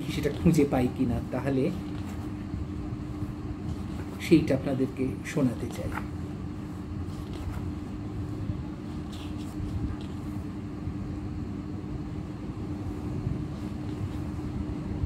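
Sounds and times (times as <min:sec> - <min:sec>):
paper pages rustling: 0:00.0 - 0:02.4, 0:03.1 - 0:04.9, 0:05.6 - 0:10.5
low background hum: 0:00.0 - 0:15.0.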